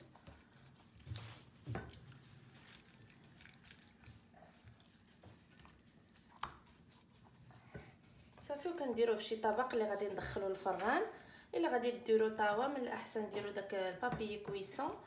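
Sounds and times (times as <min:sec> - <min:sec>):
wet squishing of hands: 0:00.0 - 0:10.9.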